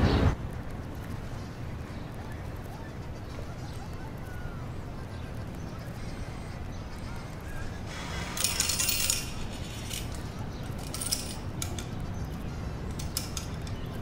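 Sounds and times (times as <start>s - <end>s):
coins clinking: 7.9s - 12.0s, 12.9s - 13.8s
coins clattering into metal cup: 8.2s - 11.8s.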